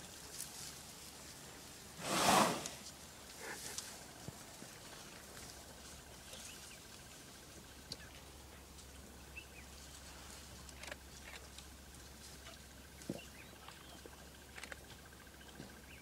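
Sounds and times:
low steady hum: 2.6 - 16.0
small clicks and rustles: 9.8 - 15.8.

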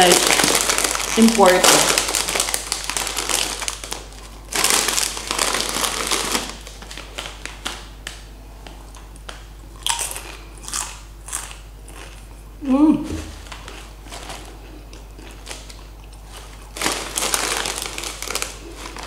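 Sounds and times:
chip crunching: 0.0 - 7.8, 8.9 - 12.4, 13.3 - 19.0
plastic bag crinkling: 0.0 - 8.2, 13.2 - 19.0.

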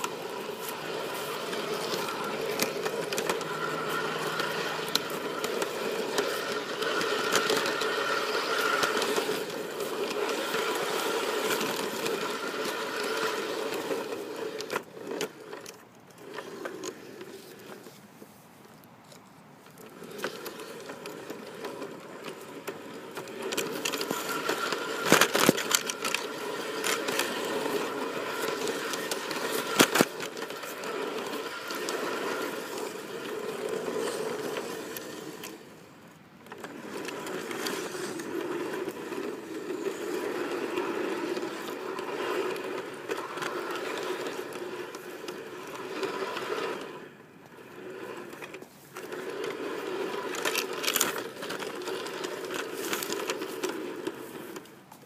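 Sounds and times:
model train motor whine: 0.0 - 18.0, 19.6 - 55.0
wheels clicking on rails: 0.0 - 55.0.

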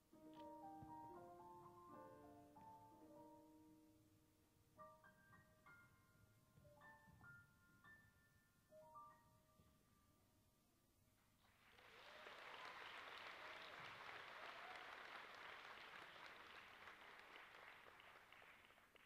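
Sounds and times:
faint audience applause: 11.4 - 19.0.

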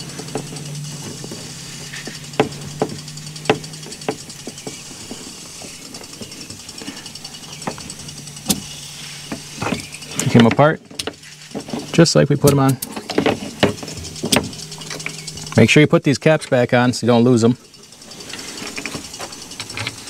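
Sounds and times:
hose couplers clicking and knocking: 0.0 - 17.3, 18.1 - 20.0
steady low hum: 0.0 - 20.0.

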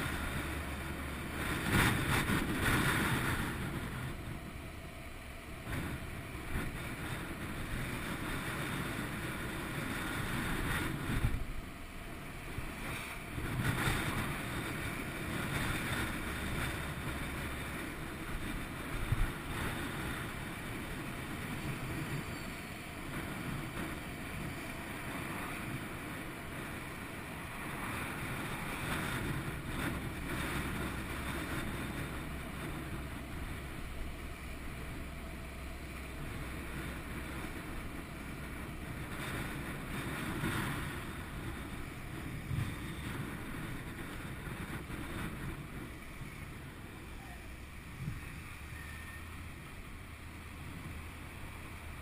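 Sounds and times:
motorcycle engine drone: 0.0 - 52.0
wind buffeting microphone: 0.0 - 52.0.

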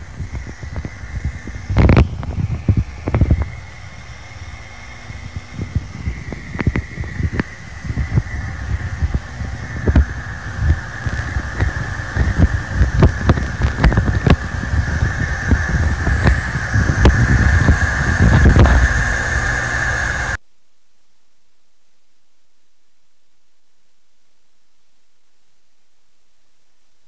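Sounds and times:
low rumble: 0.0 - 20.4
crackles and clicks: 0.0 - 21.3
high whine: 0.0 - 27.0.

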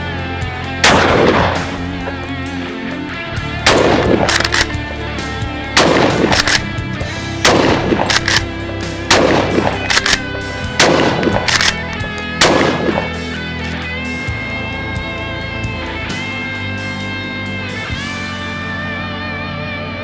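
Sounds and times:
background music: 0.0 - 20.0
shotgun shots: 0.8 - 1.9, 3.6 - 4.8, 5.8 - 6.8, 7.4 - 8.5, 9.1 - 11.8, 12.4 - 13.2
shotgun action clacking: 3.7 - 4.8, 5.8 - 6.7, 7.5 - 13.1.

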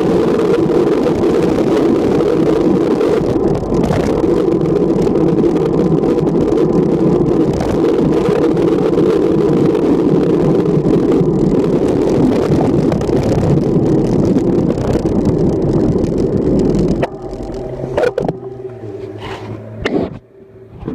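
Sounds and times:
low hum of traffic: 0.0 - 20.9
road rumble: 0.0 - 20.9
wind on microphone: 0.0 - 20.9.

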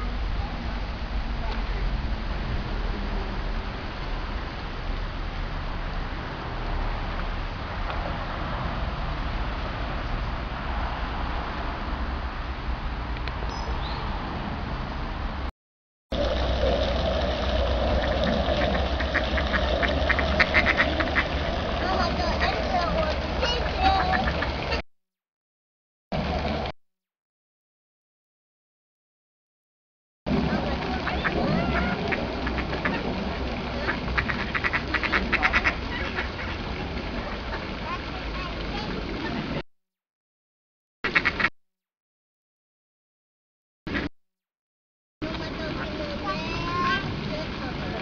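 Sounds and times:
fountain splashing: 0.0 - 13.7, 16.1 - 24.8, 26.2 - 26.7, 30.3 - 39.6, 45.2 - 48.0
ducks quacking: 18.4 - 24.8, 30.9 - 33.2, 33.8 - 36.7, 41.1 - 41.5.

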